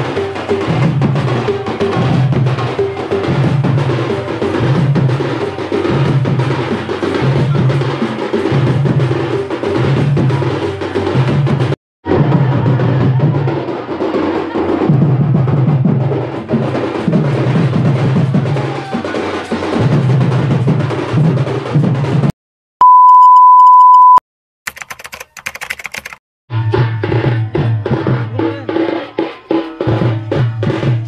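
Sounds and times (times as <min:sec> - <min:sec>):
barrel drums playing rhythmic beat: 0:00.0 - 0:22.3, 0:27.1 - 0:31.0
electronic beep: 0:22.8 - 0:24.2.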